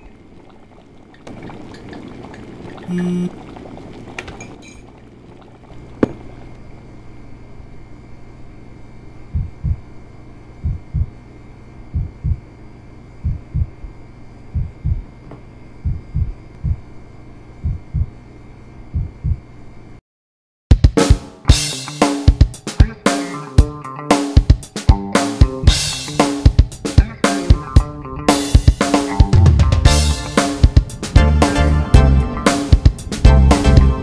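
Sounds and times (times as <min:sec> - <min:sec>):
steady low hum: 0:00.0 - 0:20.0
heartbeat thuds: 0:09.3 - 0:09.9, 0:10.6 - 0:11.2, 0:11.9 - 0:12.5, 0:13.2 - 0:13.9, 0:14.5 - 0:15.2, 0:15.8 - 0:16.9, 0:17.6 - 0:18.2, 0:18.9 - 0:19.5.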